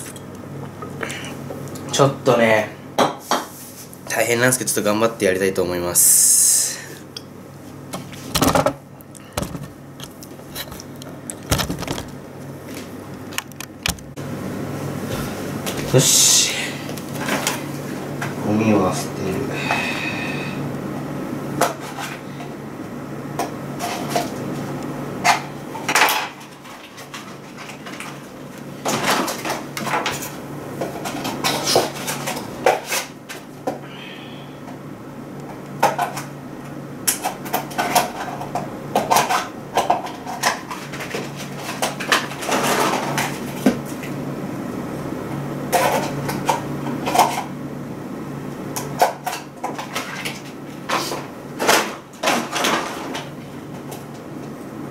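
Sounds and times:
steady low hum: 0.0s - 54.9s
plastic toys clattering: 9.4s - 12.1s, 28.8s - 30.3s, 37.2s - 43.4s, 49.0s - 53.3s.

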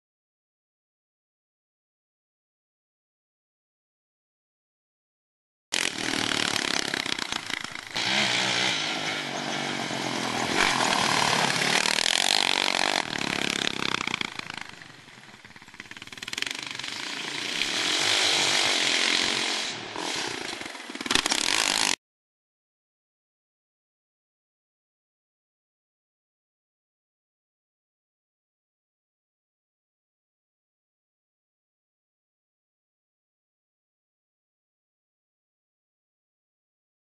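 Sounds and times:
quad engine revving: 5.7s - 22.0s.

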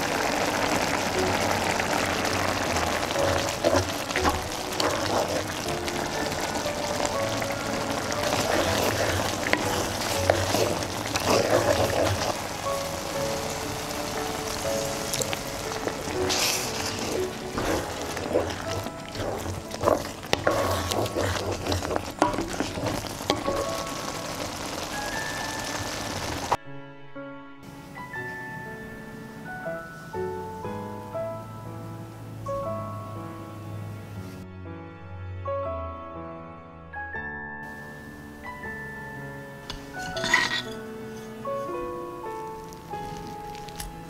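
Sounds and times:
pot bubbling and sizzling: 0.0s - 26.6s, 37.8s - 44.0s
wooden spatula stirring curry: 0.0s - 26.6s, 39.7s - 41.7s, 42.4s - 44.0s
light background music: 0.1s - 44.0s.

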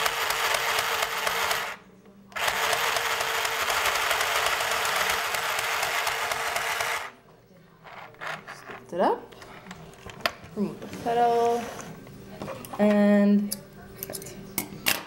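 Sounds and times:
sewing machine stitching: 2.4s - 7.1s.

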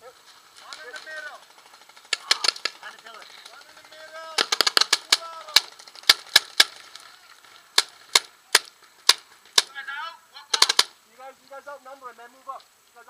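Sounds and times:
paintball markers firing: 2.0s - 3.1s, 3.8s - 7.0s, 7.7s - 9.8s, 10.5s - 11.0s.

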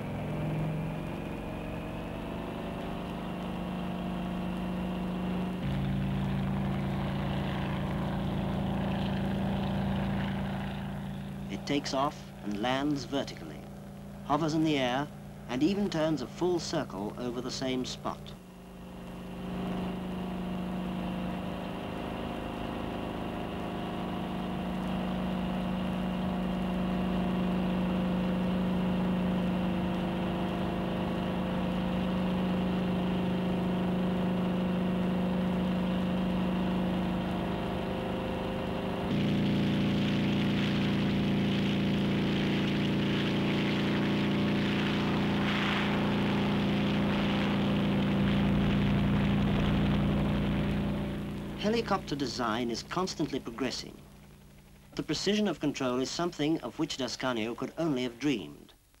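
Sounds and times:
helicopter engine and rotor drone: 13.8s - 55.0s.

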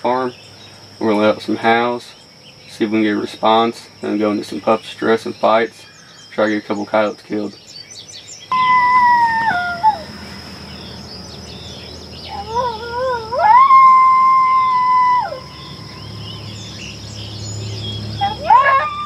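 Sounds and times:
small birds chirping: 0.0s - 19.0s
coyote howl call: 8.5s - 10.3s, 12.2s - 16.6s, 18.2s - 19.0s.

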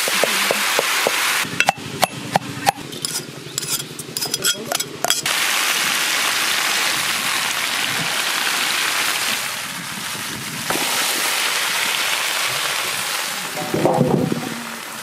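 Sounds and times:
vegetables sizzling in oil: 0.0s - 1.7s, 5.2s - 15.0s.

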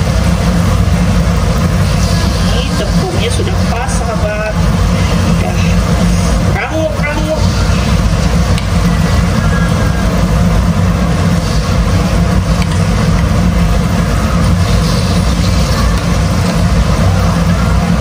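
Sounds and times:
loud low hum: 0.0s - 18.0s.

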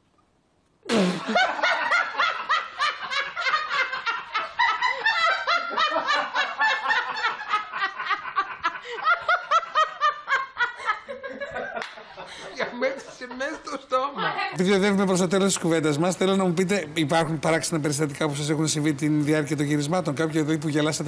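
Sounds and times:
woman laughing hard: 0.9s - 13.5s.

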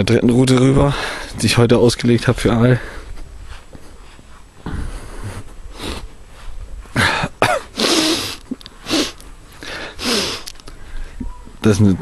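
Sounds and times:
man coughing: 6.9s - 8.4s.

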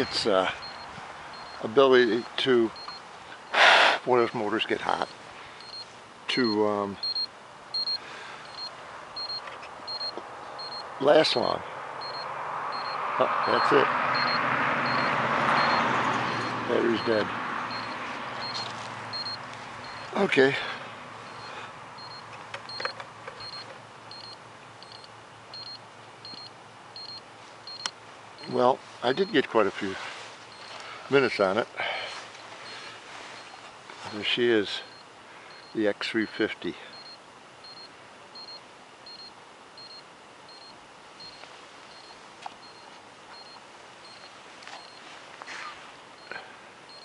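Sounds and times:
high electronic double beeps: 0.0s - 3.0s, 4.9s - 11.0s, 12.0s - 20.2s, 21.2s - 29.4s, 36.9s - 42.8s
faint steady hiss: 0.0s - 13.8s, 16.7s - 47.0s
faint clicks and handling noises: 22.2s - 25.2s.

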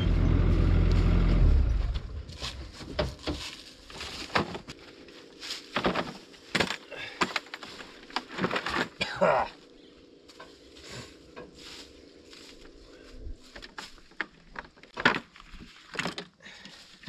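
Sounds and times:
engine running: 0.0s - 5.4s.

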